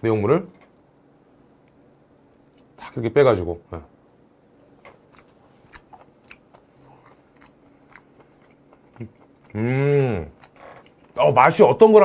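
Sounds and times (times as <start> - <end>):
wet chewing mouth clicks: 5.1 - 11.2
person humming: 9.0 - 10.4.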